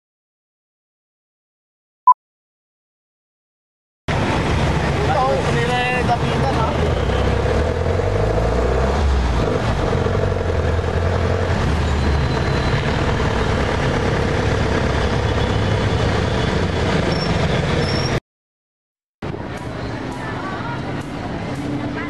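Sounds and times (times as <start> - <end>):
road noise: 4.1 - 18.2, 19.2 - 22.0
vehicle engines humming: 4.1 - 18.2, 19.3 - 22.0.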